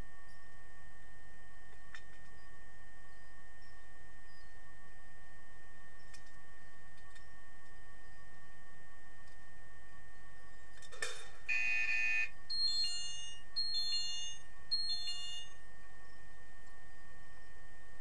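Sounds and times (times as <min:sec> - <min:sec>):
short multi-tone beeps: 0:11.5 - 0:15.6
underwater electronic buzzer: 0:11.5 - 0:15.6.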